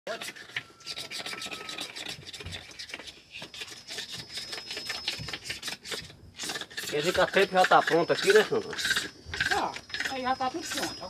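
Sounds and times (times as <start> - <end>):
high thin tone: 0.1 - 5.9, 6.9 - 11.0
faint thin whistle: 0.1 - 6.1
scratchy rubbing and scraping: 0.1 - 11.0.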